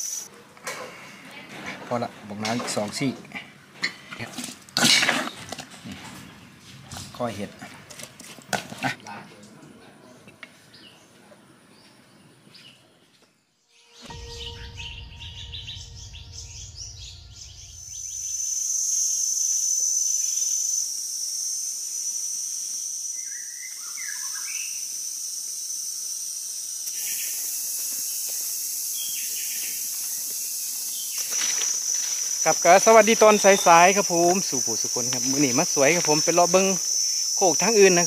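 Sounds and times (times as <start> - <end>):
insects droning: 0.0 - 6.6, 13.8 - 38.0
low rumble: 14.0 - 18.8.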